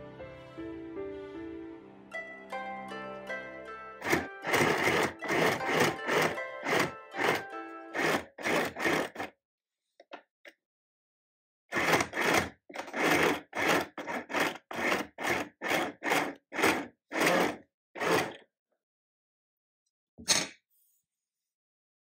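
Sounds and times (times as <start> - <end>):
sewing machine stitching: 4.0 - 9.3, 11.7 - 18.4.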